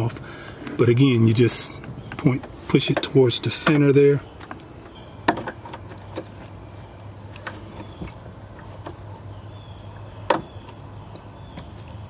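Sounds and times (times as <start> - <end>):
plastic trim clicks and knocks: 5.2 - 6.3.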